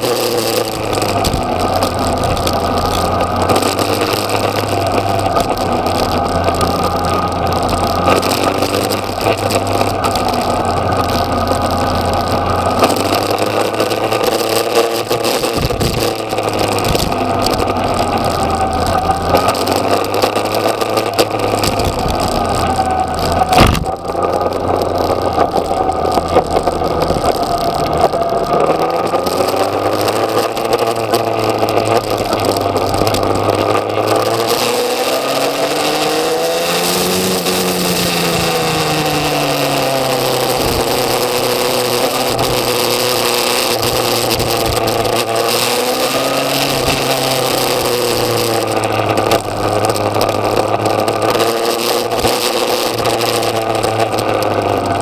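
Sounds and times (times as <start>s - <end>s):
motorcycle engine revving: 0.0s - 55.0s
wind noise: 0.0s - 55.0s.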